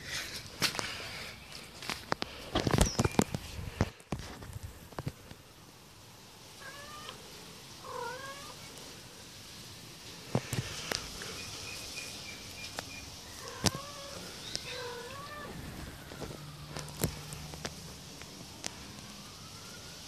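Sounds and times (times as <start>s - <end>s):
kitten mewing: 13.4s - 15.6s.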